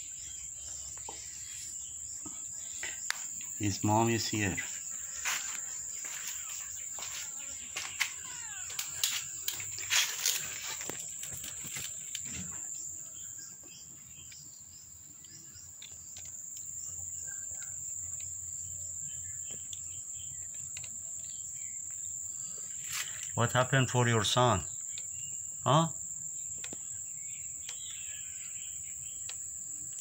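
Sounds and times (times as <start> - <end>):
insects chirping: 0.0 - 30.0
sharp clicks and short chirps: 7.4 - 12.3.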